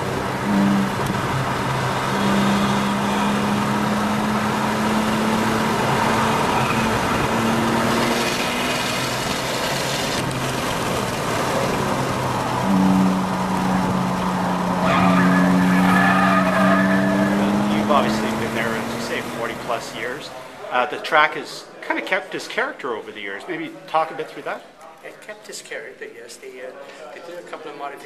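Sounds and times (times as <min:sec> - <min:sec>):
car engine running: 0:00.0 - 0:20.4
road noise: 0:00.0 - 0:25.2.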